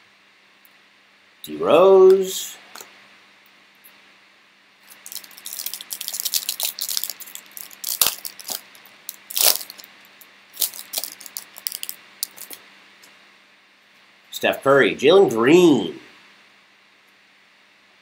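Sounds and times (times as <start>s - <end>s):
foil wrapper crinkling and tearing: 4.9s - 12.6s.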